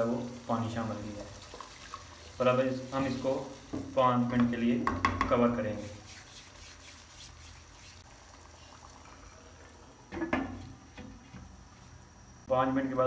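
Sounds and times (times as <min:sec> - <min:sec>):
curry simmering in a pan: 0:00.0 - 0:04.0.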